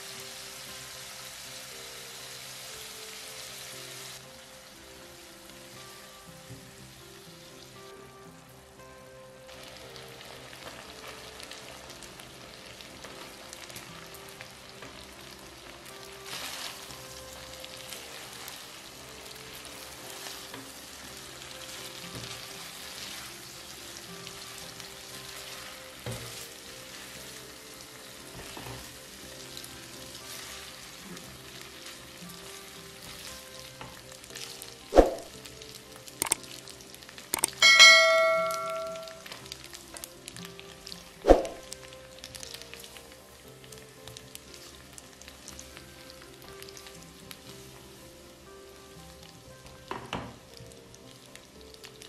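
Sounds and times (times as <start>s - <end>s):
food sizzling in a pan: 0.0s - 52.0s
sharp metal clank: 37.4s - 39.2s.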